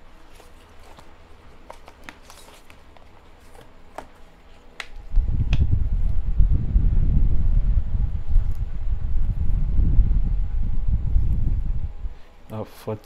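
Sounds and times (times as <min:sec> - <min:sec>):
cardboard and paper rustling: 0:00.2 - 0:04.8
loud low rumble: 0:05.1 - 0:12.2.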